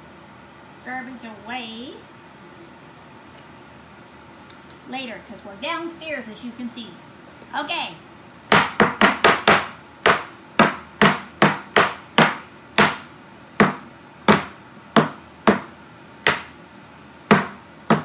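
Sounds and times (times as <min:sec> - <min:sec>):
cleaver chopping on plastic board: 0:08.5 - 0:16.5, 0:17.3 - 0:18.0.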